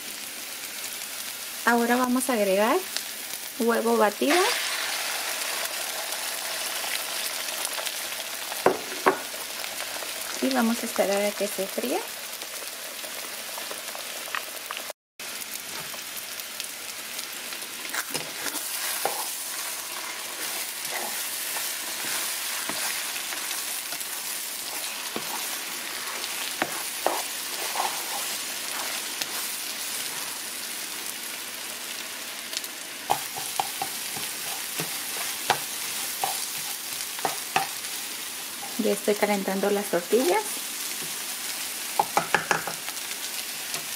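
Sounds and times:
egg sizzling in a frying pan: 0:00.0 - 0:43.9
spatula scraping a pan: 0:17.9 - 0:30.5, 0:33.1 - 0:37.9.

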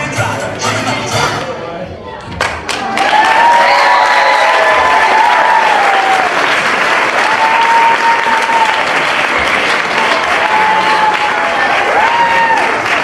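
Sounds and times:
audience applauding: 0:02.4 - 0:13.0.

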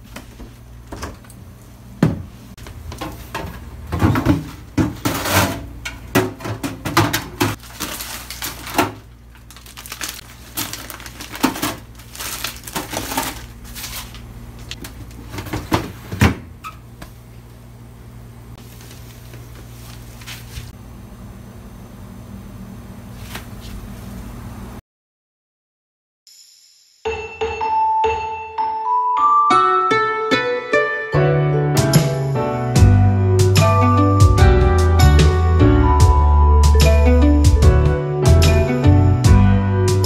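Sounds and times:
plastic drawers knocking and clattering: 0:02.9 - 0:07.6, 0:15.2 - 0:16.5
packaging rustling: 0:07.5 - 0:15.6.

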